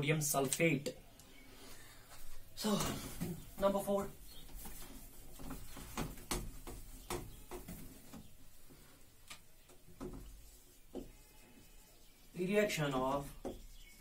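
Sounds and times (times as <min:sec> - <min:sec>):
marker tapping on a whiteboard: 0:05.4 - 0:08.0, 0:09.7 - 0:11.2, 0:13.0 - 0:13.8.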